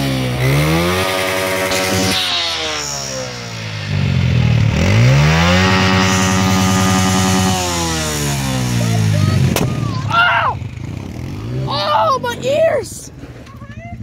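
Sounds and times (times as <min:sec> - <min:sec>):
quad engine revving: 0:00.0 - 0:14.0.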